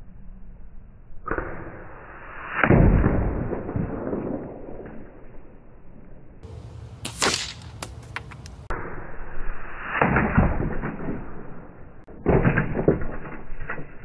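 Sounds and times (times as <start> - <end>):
air rifle crack: 7.0 - 8.8.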